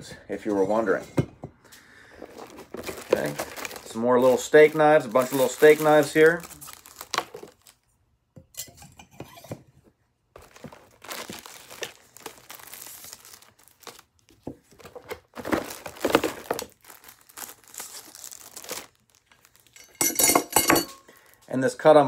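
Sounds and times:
plastic wrapping crinkling and tearing: 0:02.1 - 0:07.9, 0:10.4 - 0:20.0, 0:21.1 - 0:21.5.

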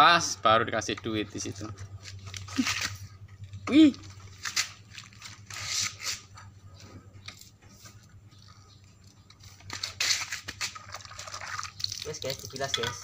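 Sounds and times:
scratchy rubbing and handling: 0:04.0 - 0:11.5.

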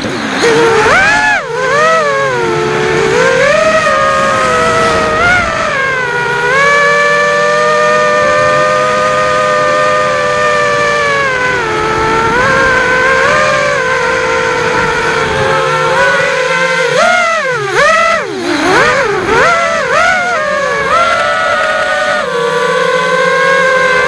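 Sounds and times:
drone motors whining: 0:00.0 - 0:24.0.

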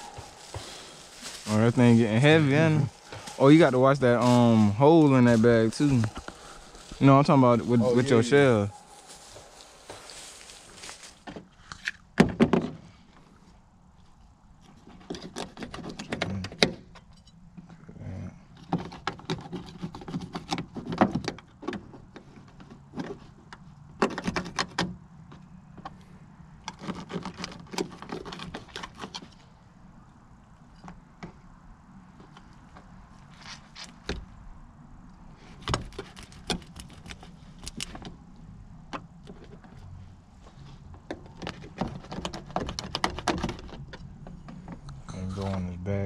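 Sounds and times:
scraping and rustling on plastic: 0:00.0 - 0:12.0, 0:14.2 - 0:16.6, 0:18.5 - 0:24.9, 0:26.6 - 0:29.6, 0:32.1 - 0:34.1, 0:35.4 - 0:38.3, 0:39.3 - 0:44.8.

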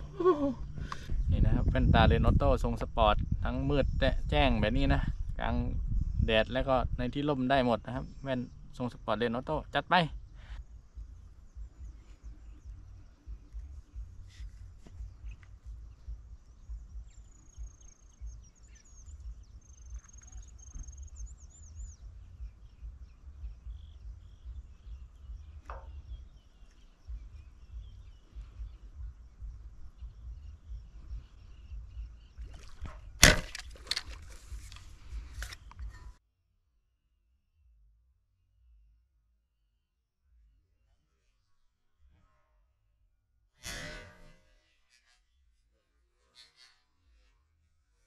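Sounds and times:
birds chirping: 0:00.0 - 0:36.2
wind rumbling on microphone: 0:00.0 - 0:36.2
speargun firing crack: 0:32.8 - 0:34.1.

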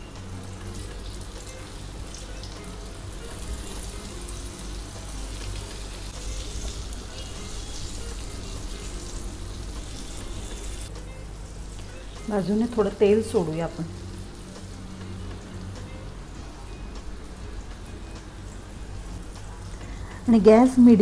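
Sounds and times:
soft background music: 0:00.0 - 0:21.0
hot oil sizzling on a griddle: 0:00.2 - 0:10.9.

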